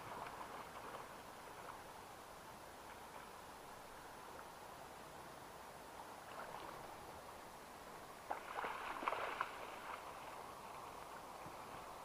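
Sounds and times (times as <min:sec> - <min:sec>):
faint background noise: 0:00.0 - 0:12.0
fish splashing in water: 0:08.3 - 0:10.3.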